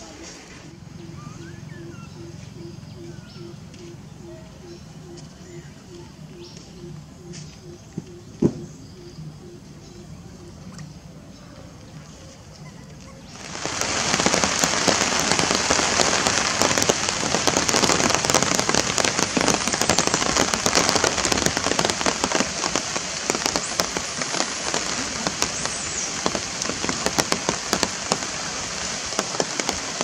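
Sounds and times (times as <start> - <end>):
steady rain pattering: 9.2 - 30.0.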